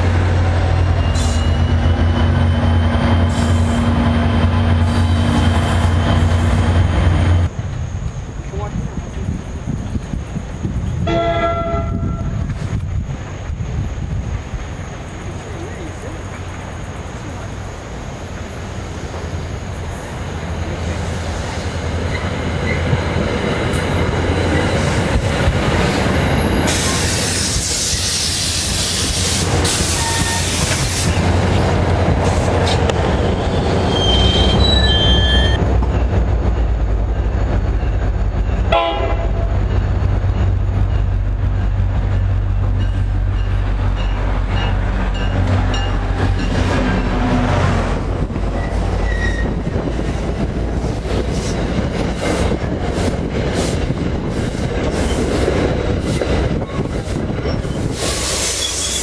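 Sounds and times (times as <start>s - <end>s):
diesel locomotive engine drone: 0.0s - 59.0s
train coaches rumbling on rails: 0.0s - 59.0s
wheel squeals: 29.8s - 31.3s, 33.2s - 35.6s, 48.5s - 49.6s, 57.4s - 59.0s.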